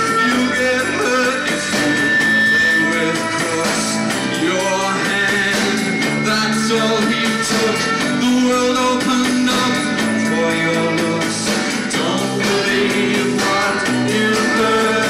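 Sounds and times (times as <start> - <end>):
live rock band playing: 0.0 - 15.0
man singing: 0.0 - 15.0.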